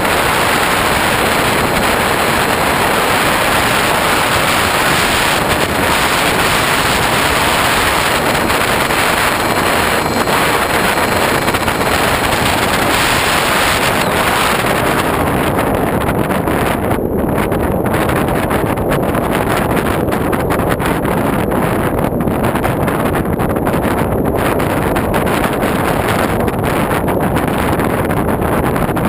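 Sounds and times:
electric motor whine: 0.0s - 15.8s
airflow rushing over microphone: 0.0s - 27.9s.

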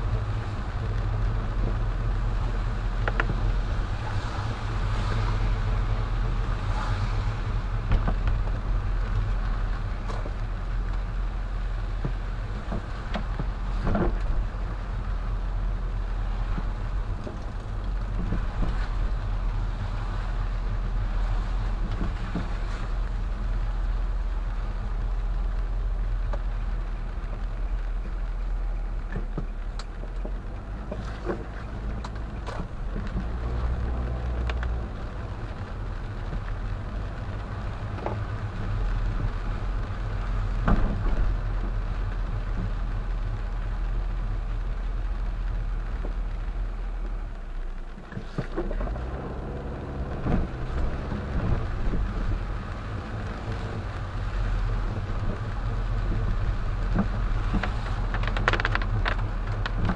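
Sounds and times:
car engine and tyre noise: 0.0s - 59.9s
raindrops ticking on windshield: 0.0s - 59.9s.

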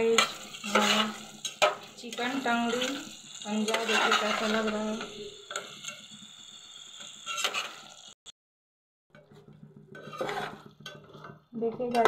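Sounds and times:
faint sizzle: 0.0s - 8.2s
metal spatula scraping a pot: 0.0s - 8.2s, 9.1s - 12.0s.

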